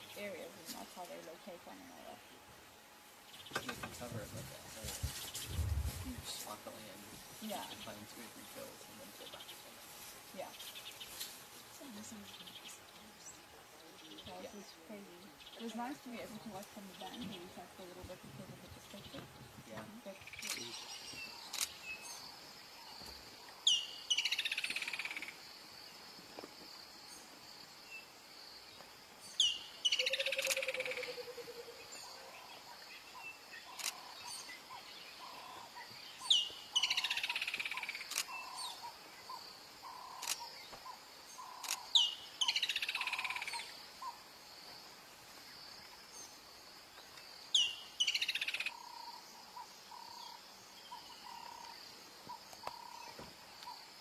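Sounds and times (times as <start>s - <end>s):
bird calling: 29.4s - 44.2s, 47.5s - 53.8s.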